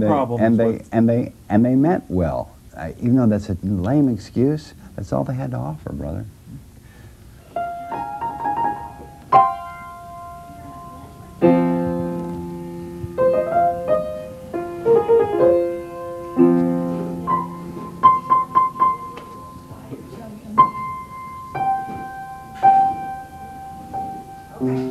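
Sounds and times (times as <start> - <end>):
slow solo piano music: 7.5 - 24.9.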